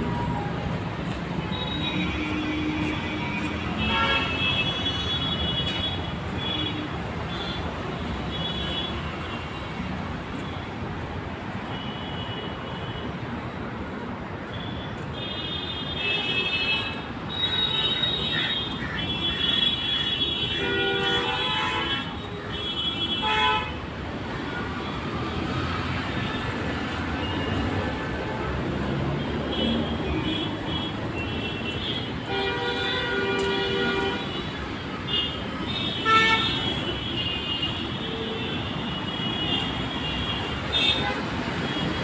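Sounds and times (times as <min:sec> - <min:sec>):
road traffic rumble: 0:00.0 - 0:42.0
car horns honking: 0:35.0 - 0:42.0.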